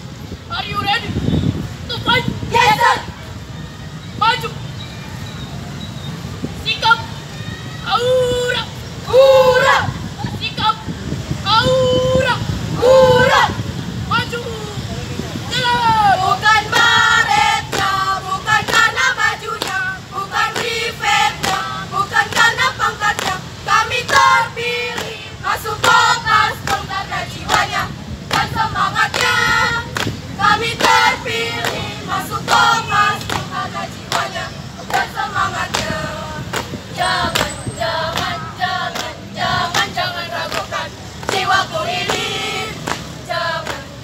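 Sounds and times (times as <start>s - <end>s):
girls singing and chanting: 2.4s - 3.4s, 9.0s - 10.4s, 12.7s - 13.8s, 15.4s - 44.0s
hand claps in rhythm: 18.6s - 23.4s, 30.8s - 37.5s, 38.1s - 43.9s.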